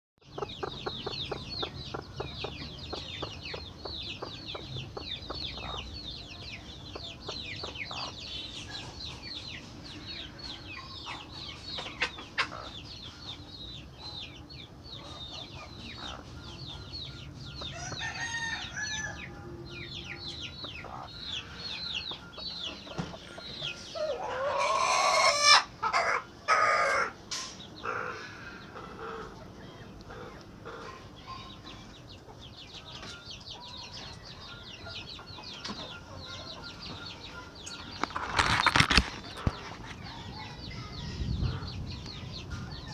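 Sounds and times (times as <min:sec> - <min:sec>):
chicks peeping: 0:00.2 - 0:42.9
rooster crowing: 0:17.7 - 0:19.4, 0:24.0 - 0:27.2.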